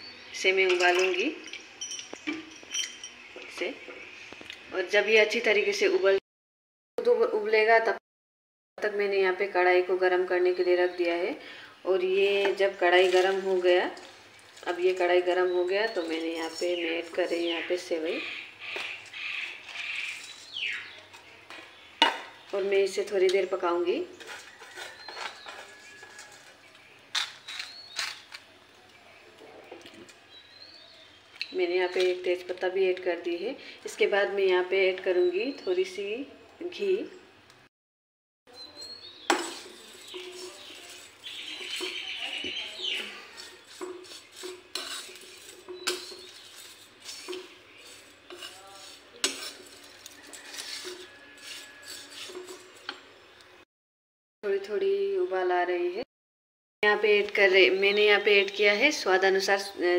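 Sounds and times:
metal clinks: 0.7 - 3.3
dry rustling scrapes in pan: 12.3 - 22.7, 24.1 - 28.3, 39.3 - 52.9
frying sizzle: 39.2 - 51.1.

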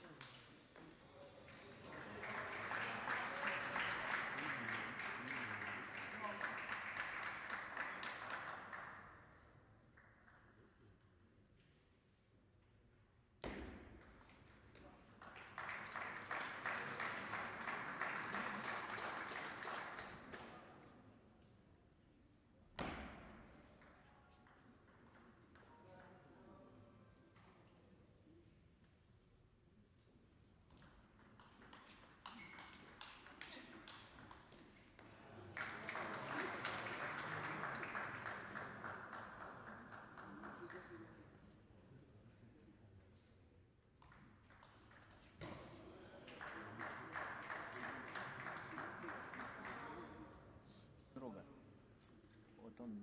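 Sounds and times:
spectators applauding: 1.5 - 9.2, 15.2 - 20.6, 35.4 - 41.1, 46.2 - 50.2.

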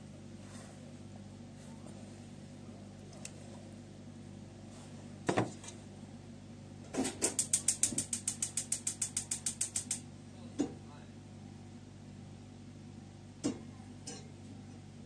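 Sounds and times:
gas stove igniter clicking: 7.2 - 10.0.

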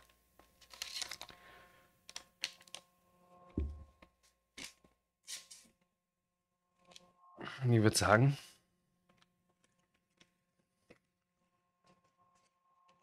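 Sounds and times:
foil sachet crinkling and tearing: 0.6 - 2.8.

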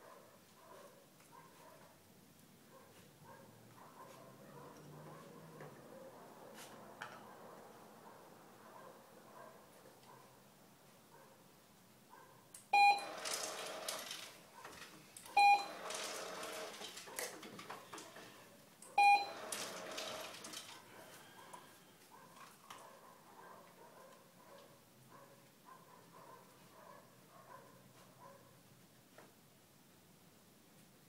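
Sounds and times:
short electronic beeps: 12.8 - 13.2, 15.4 - 15.8, 19.0 - 19.4.

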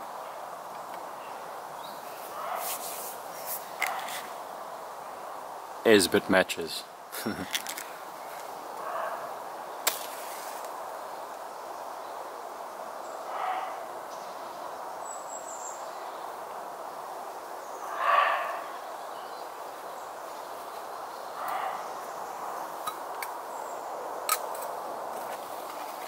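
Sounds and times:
steady background hiss: 0.0 - 26.0
animal calling: 17.8 - 18.9, 21.3 - 22.6.

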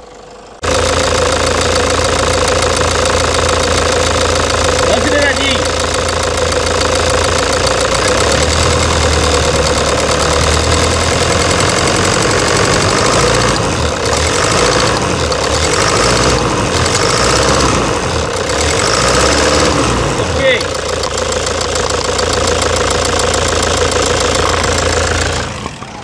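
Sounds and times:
diesel engine idling with knock: 0.0 - 26.0.

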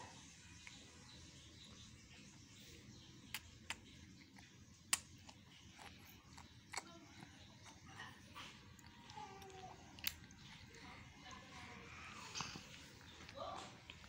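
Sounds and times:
baby lips smacking: 3.3 - 10.8.

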